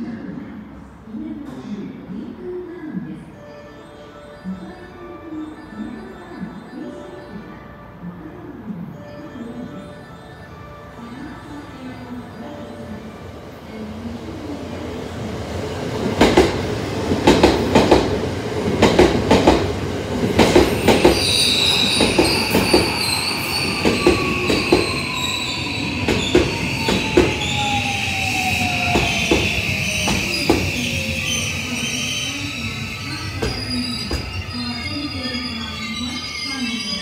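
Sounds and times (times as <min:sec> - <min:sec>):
high squeal: 0:20.8 - 0:37.0.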